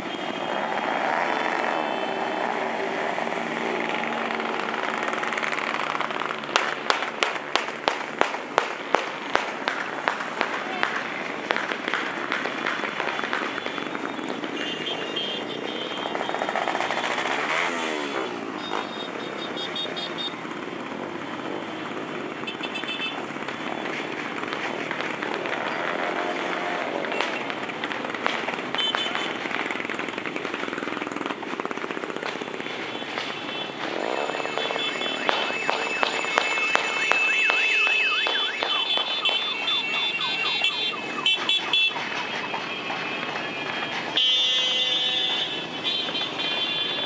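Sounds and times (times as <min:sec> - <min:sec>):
motorcycles riding past: 0:00.4 - 0:06.8, 0:15.5 - 0:22.4, 0:24.6 - 0:41.4
crowd voices: 0:33.9 - 0:41.2
steady high tone: 0:34.0 - 0:40.7.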